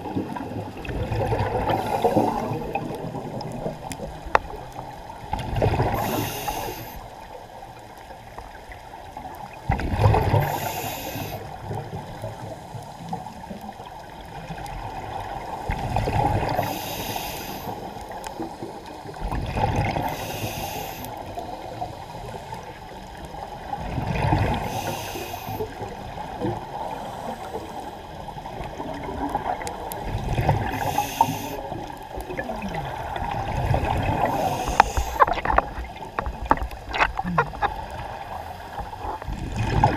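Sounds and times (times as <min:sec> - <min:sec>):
exhaled bubbles rushing: 0:00.0 - 0:06.3, 0:09.5 - 0:10.7, 0:14.3 - 0:16.7, 0:19.1 - 0:20.2, 0:23.7 - 0:24.8, 0:28.3 - 0:39.9
diver breathing through regulator: 0:01.6 - 0:02.7, 0:05.8 - 0:07.1, 0:10.3 - 0:11.5, 0:16.4 - 0:18.7, 0:20.0 - 0:22.3, 0:24.5 - 0:25.8, 0:30.4 - 0:31.8, 0:34.1 - 0:35.8.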